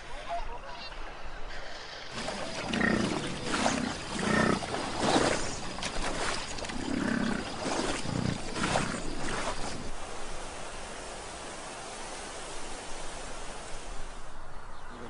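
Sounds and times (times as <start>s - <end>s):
bison bellowing: 2.2s - 9.7s.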